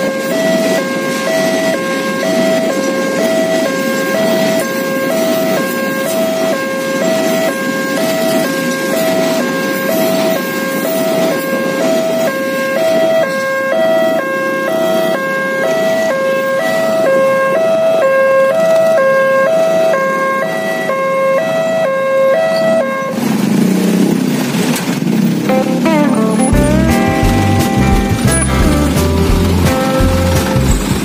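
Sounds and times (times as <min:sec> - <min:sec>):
freight train rumbling: 0:00.0 - 0:15.1, 0:22.6 - 0:31.0
level crossing two-tone alarm: 0:00.0 - 0:23.2, 0:25.5 - 0:31.0
motorcycles and cars moving off: 0:23.0 - 0:31.0.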